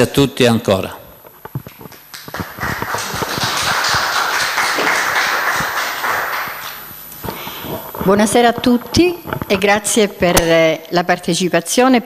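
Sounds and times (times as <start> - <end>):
audience applauding: 1.7 - 6.9.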